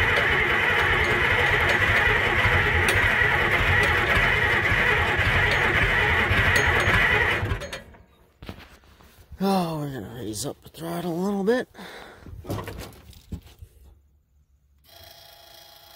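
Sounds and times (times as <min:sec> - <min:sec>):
old tractor engine running: 0:00.0 - 0:08.0.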